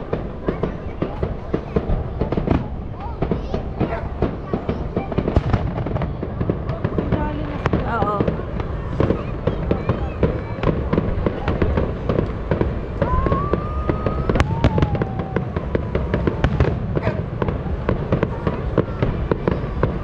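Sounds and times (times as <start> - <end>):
fireworks bangs and crackling: 0.0 - 20.0
sharp firework crack: 0.0 - 20.0
firework whistle: 10.6 - 17.5
low rumble: 10.8 - 19.8.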